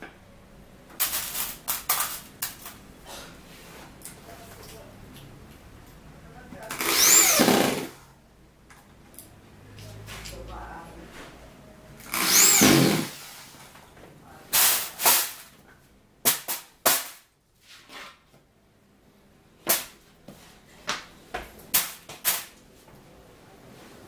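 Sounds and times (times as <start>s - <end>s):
electric drill whine: 6.7s - 7.9s, 12.1s - 13.2s.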